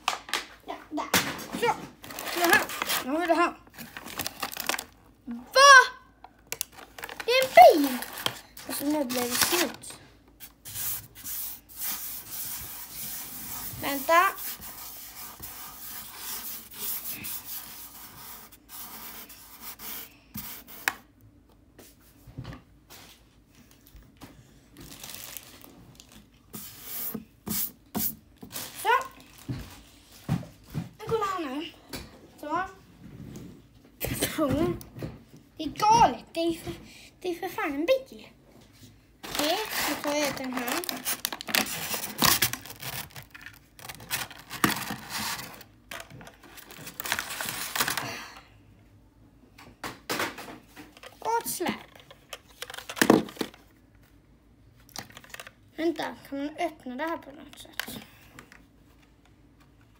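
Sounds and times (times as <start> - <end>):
plastic and cardboard rustling: 1.1 - 5.2, 6.3 - 21.0, 24.7 - 31.4, 38.8 - 48.3, 50.2 - 54.2, 54.8 - 55.6
plastic bag crinkling: 2.0 - 5.1, 6.5 - 10.0, 24.8 - 26.4, 39.2 - 48.2.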